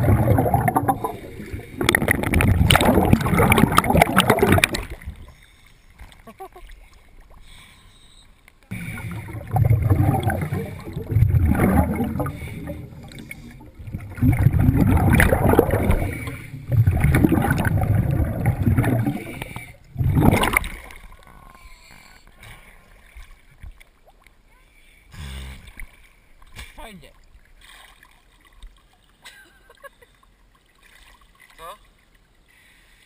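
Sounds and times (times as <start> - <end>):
underwater air bubbling: 0.0 - 7.6, 8.7 - 21.6.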